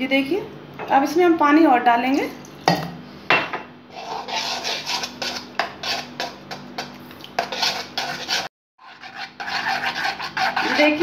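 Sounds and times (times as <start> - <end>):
batter stirring scrapes and clinks: 3.9 - 11.0.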